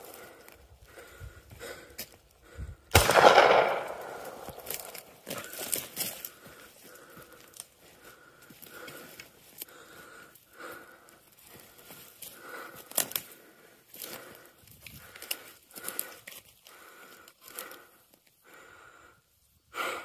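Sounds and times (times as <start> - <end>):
hard wheezy breathing: 0.0 - 2.9, 5.3 - 20.0
footsteps through dry grass: 0.0 - 17.9
sharp crackles: 2.9 - 7.7, 11.7 - 18.2.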